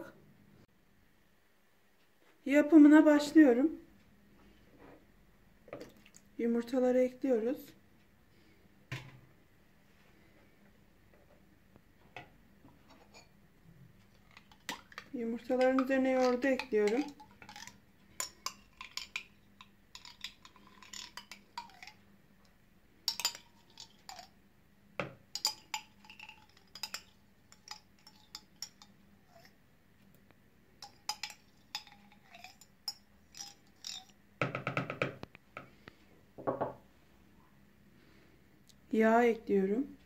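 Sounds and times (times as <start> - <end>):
spoon scraping and tapping cup: 14.2 - 22.0, 23.1 - 24.3, 25.0 - 29.6, 30.8 - 34.2.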